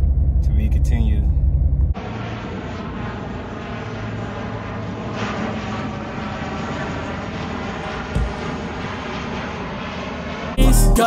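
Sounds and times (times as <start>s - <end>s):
turboprop plane flying overhead: 0.0s - 11.0s
thump: 8.1s - 8.4s.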